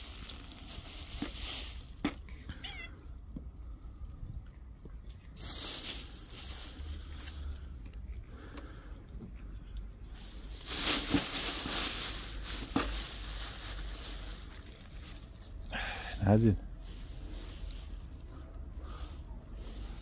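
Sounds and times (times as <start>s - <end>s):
plastic bag crinkling: 0.0s - 2.9s, 5.2s - 7.7s, 10.1s - 20.0s.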